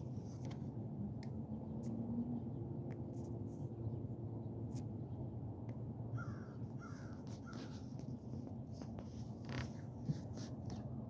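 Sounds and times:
crow cawing: 6.2s - 7.6s.

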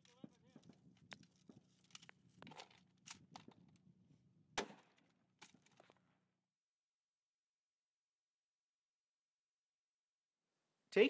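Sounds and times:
metallic clicks of gun mechanism: 1.0s - 3.8s.

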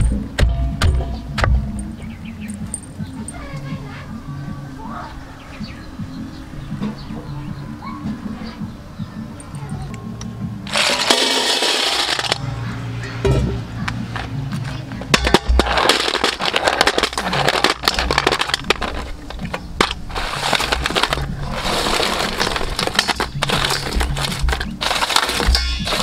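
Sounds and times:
shells clattering in metal bowl: 10.7s - 12.4s, 15.1s - 26.0s.

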